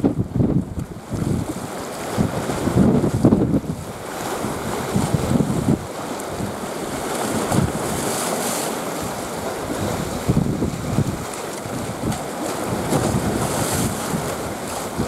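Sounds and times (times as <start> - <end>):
wind buffeting microphone: 0.0 - 8.2, 9.0 - 15.0
rough sea waves breaking: 0.0 - 15.0.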